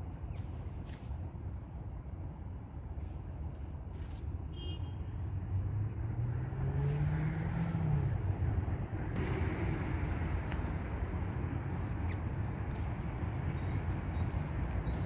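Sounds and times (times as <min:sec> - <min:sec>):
road traffic rumble: 0:00.0 - 0:15.0
car passing by: 0:05.5 - 0:15.0.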